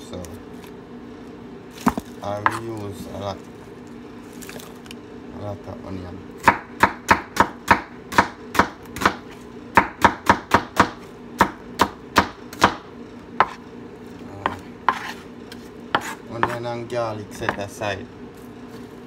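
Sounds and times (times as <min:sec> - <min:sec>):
knife slicing on cutting board: 0:14.4 - 0:16.6.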